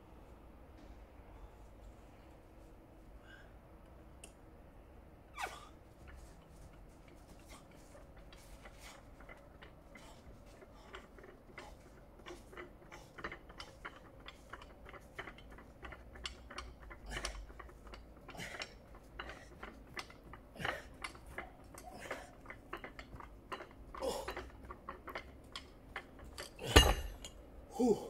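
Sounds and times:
metal handle clinking: 0:11.0 - 0:27.4.

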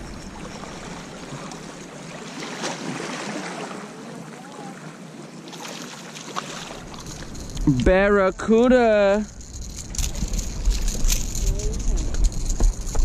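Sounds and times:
breeze: 0:04.2 - 0:13.0
seawater washing: 0:05.4 - 0:13.0.

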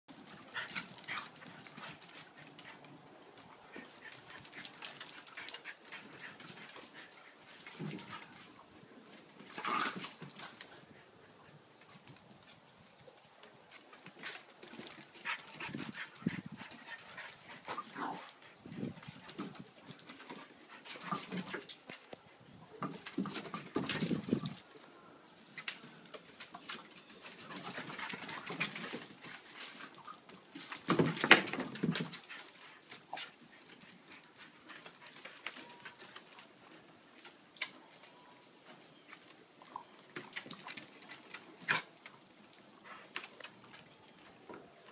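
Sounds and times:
paws scrabbling on wooden boards: 0:25.6 - 0:37.8.

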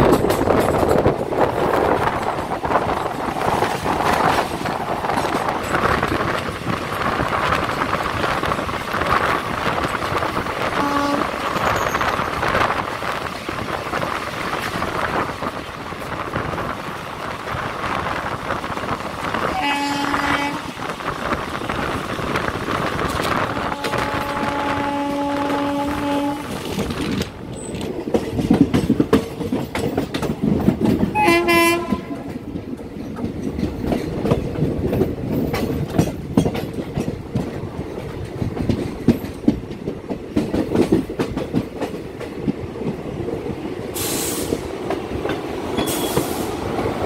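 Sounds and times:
train wheels rumbling on rails: 0:00.0 - 0:47.0
train horn: 0:10.7 - 0:11.4, 0:19.4 - 0:20.8, 0:23.4 - 0:26.7, 0:31.1 - 0:32.4
rushing air: 0:42.6 - 0:47.0.

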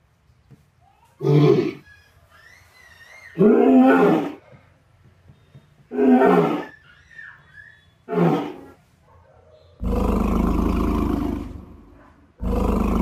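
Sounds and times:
deep dinosaur roar: 0:09.8 - 0:13.0.

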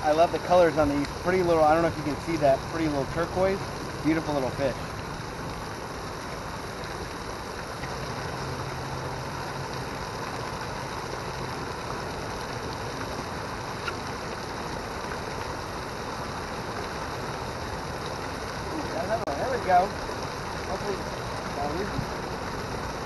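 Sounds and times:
small waterfall splashing: 0:00.0 - 0:23.0.

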